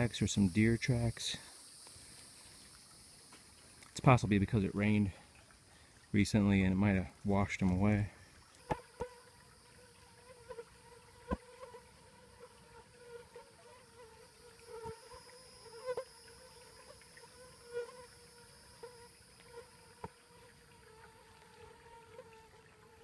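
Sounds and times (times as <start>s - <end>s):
high-pitched insect trilling: 0.0s - 5.2s, 8.6s - 22.5s
flying insect buzzing: 8.6s - 23.0s.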